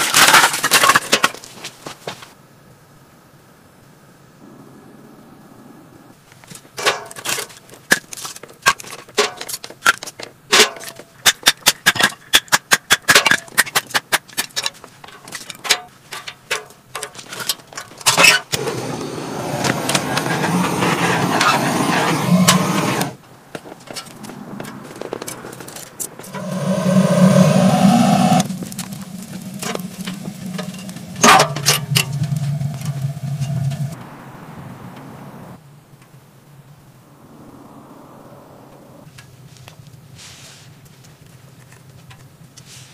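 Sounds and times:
firewood cracking and snapping: 0:00.0 - 0:01.7, 0:28.4 - 0:34.0
steady rushing noise: 0:18.6 - 0:23.2, 0:23.9 - 0:35.6.

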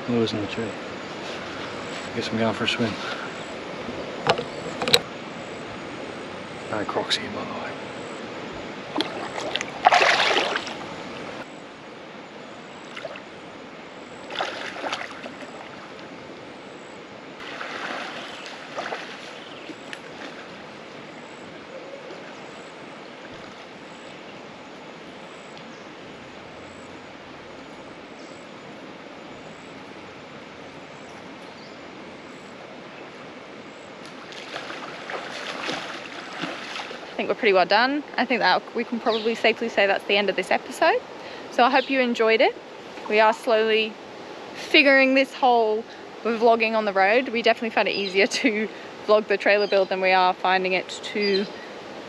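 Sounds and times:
creek running: 0:00.0 - 0:52.0
splashing in water: 0:08.9 - 0:11.4, 0:14.3 - 0:16.0, 0:17.4 - 0:21.0, 0:34.0 - 0:37.4.

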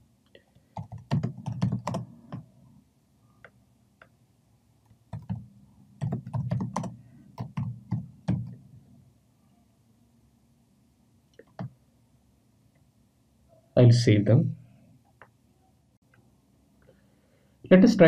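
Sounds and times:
computer keyboard typing: 0:00.7 - 0:02.5, 0:04.8 - 0:08.6, 0:11.4 - 0:11.8.

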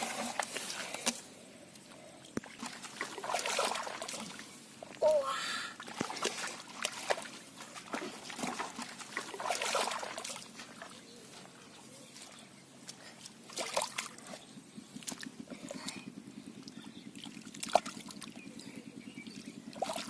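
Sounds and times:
hands sloshing in muddy water: 0:00.0 - 0:01.3, 0:02.4 - 0:04.8, 0:05.8 - 0:18.8, 0:19.4 - 0:20.0.

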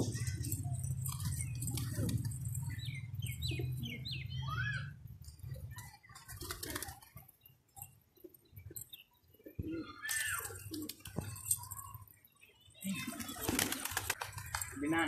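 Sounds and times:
pigeons cooing: 0:00.0 - 0:07.3, 0:08.2 - 0:12.1, 0:12.8 - 0:14.8
pigeon wing flaps: 0:06.1 - 0:07.3, 0:13.0 - 0:14.8.

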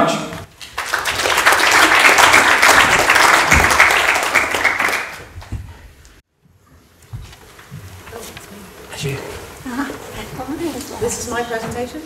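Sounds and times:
audience applauding: 0:00.5 - 0:05.5.

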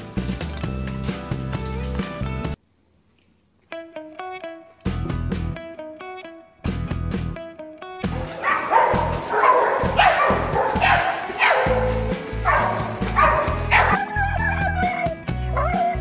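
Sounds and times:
background music with bass: 0:00.0 - 0:02.6, 0:03.8 - 0:16.0
dog barking in yips: 0:08.2 - 0:16.0.

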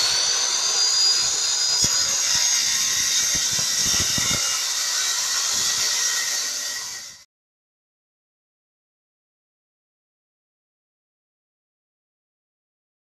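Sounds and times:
circular saw cutting wood: 0:00.0 - 0:07.3.

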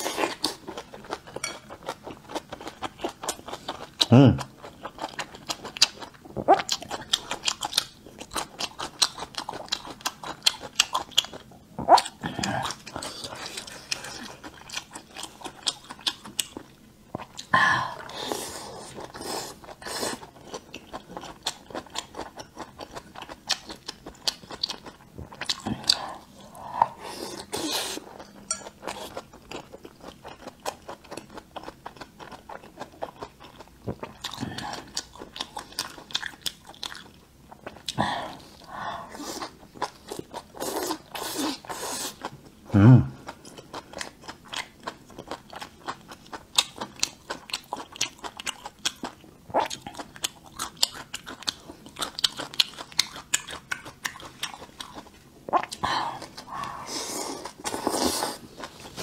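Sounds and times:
crunchy chewing: 0:43.3 - 0:59.0.

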